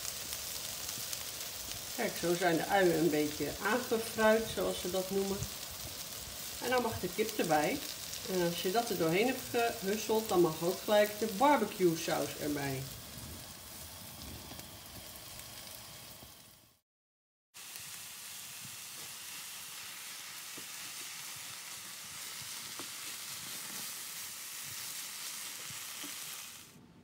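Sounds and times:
food sizzling in a hot pan: 0.0 - 16.8, 17.6 - 26.8
wooden spatula scraping: 20.5 - 26.5.

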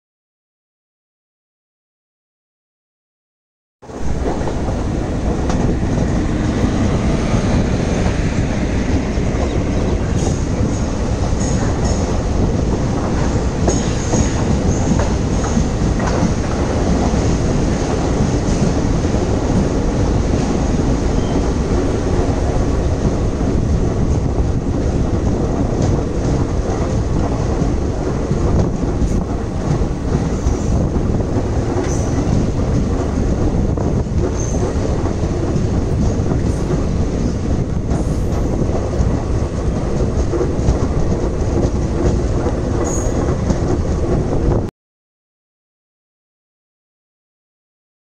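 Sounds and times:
train wheels rumbling on rail: 3.8 - 44.7
track clatter: 3.9 - 44.7.

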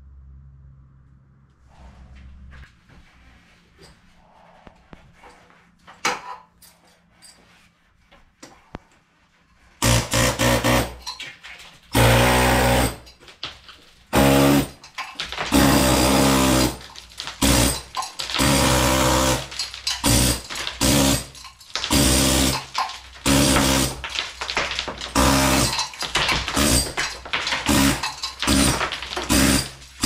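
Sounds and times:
power tool grooving plaster wall: 9.8 - 11.1, 11.9 - 13.1, 14.1 - 30.0.

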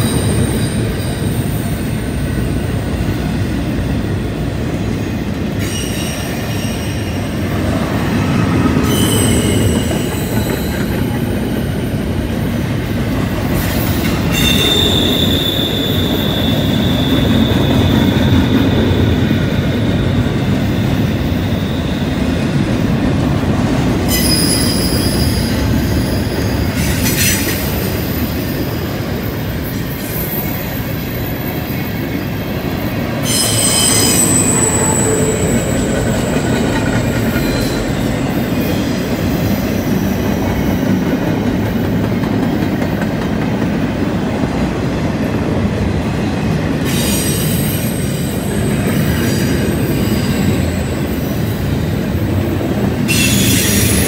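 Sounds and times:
wheels rumbling on rail: 0.0 - 54.0
wheel flange squeal: 8.8 - 10.8, 13.8 - 19.0, 24.1 - 26.4, 33.2 - 39.0.

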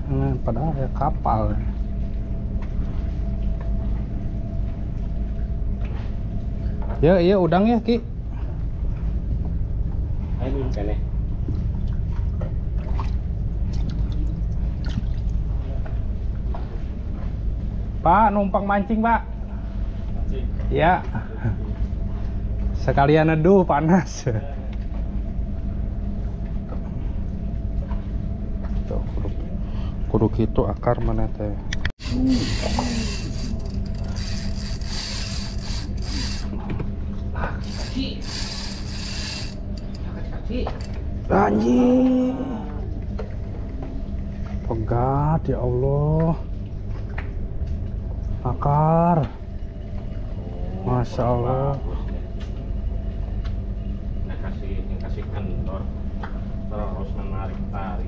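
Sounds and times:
steady low rumble: 0.0 - 58.0
fishing reel drag ratcheting: 32.0 - 36.6, 37.6 - 40.1.

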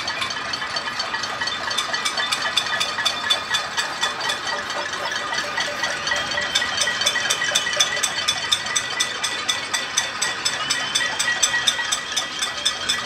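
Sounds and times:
pots and pans being banged: 0.0 - 13.0.

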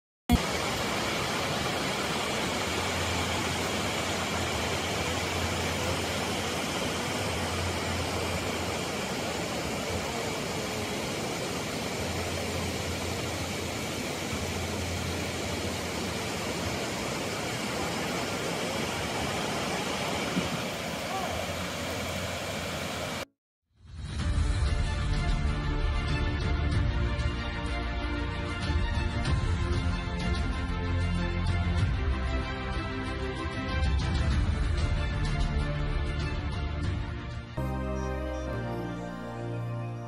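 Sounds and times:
waterfalls roaring into a pool: 0.3 - 23.3.

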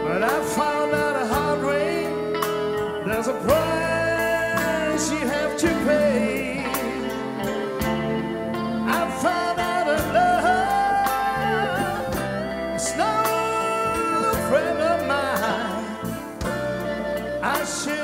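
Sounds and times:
electric guitar solo: 0.0 - 18.0
live band playing blues: 0.0 - 18.0.

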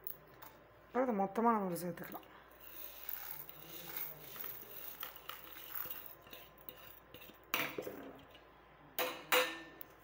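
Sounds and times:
seeds rustling and clinking: 2.6 - 7.4.

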